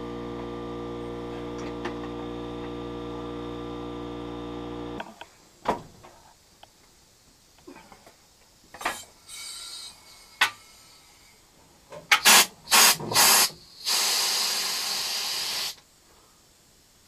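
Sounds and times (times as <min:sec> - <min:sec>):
compressed air hissing: 0:08.9 - 0:15.8
loud air blasts: 0:09.3 - 0:11.2, 0:12.1 - 0:15.8.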